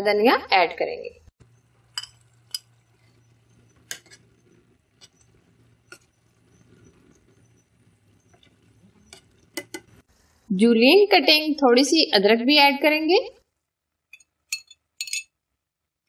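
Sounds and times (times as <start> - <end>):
ladle stirring thick stew: 1.4 - 10.1
ladle clicking against pot: 3.8 - 4.2, 9.1 - 9.9.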